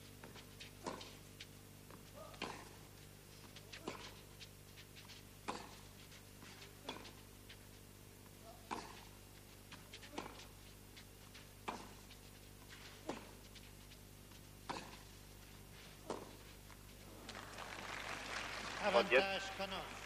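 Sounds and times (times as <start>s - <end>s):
tennis racket striking ball: 0.2s - 1.2s, 2.2s - 2.8s, 5.4s - 5.9s, 6.7s - 7.2s, 8.5s - 10.6s, 11.6s - 13.6s, 14.6s - 15.2s, 15.8s - 16.5s.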